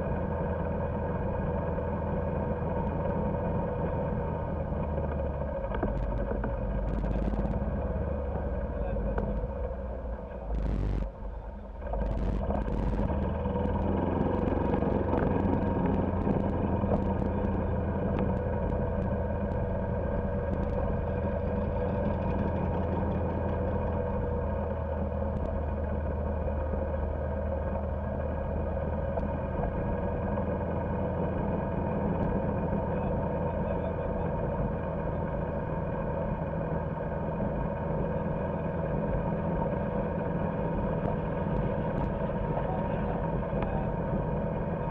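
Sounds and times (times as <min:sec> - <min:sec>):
golf cart drivetrain hum: 0:00.0 - 0:10.5, 0:11.2 - 0:44.9.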